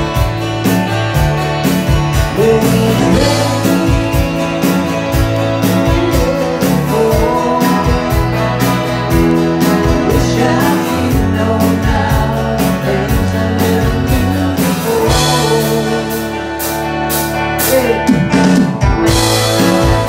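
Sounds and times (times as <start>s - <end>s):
guitars strumming and picking: 0.0s - 20.0s
man singing: 2.3s - 16.6s, 17.6s - 18.8s.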